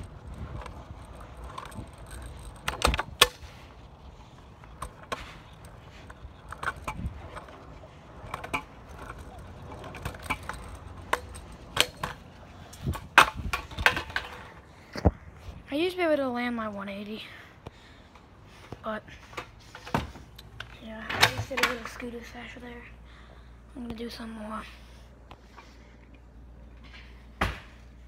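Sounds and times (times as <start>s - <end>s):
scooter rattling: 0.0s - 15.0s, 18.9s - 22.9s
scooter clacking against pavement: 0.0s - 15.1s, 19.4s - 22.3s
scooter wheels rolling on concrete: 0.0s - 28.0s.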